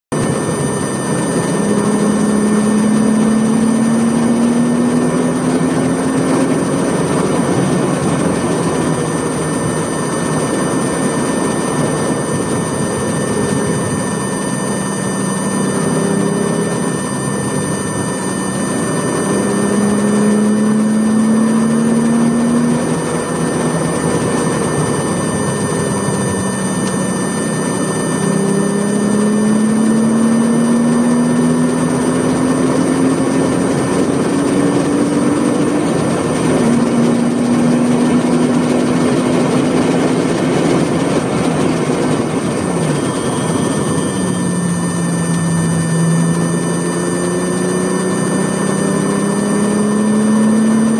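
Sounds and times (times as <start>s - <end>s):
wind and road noise: 0.1s - 50.9s
car engine accelerating: 1.4s - 9.7s, 18.7s - 24.9s, 27.6s - 44.0s.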